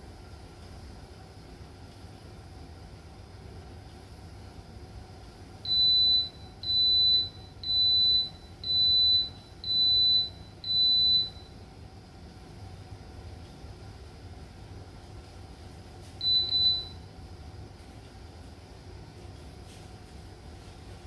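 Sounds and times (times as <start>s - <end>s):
pressure cooker beeping: 5.7s - 11.6s, 16.2s - 17.1s.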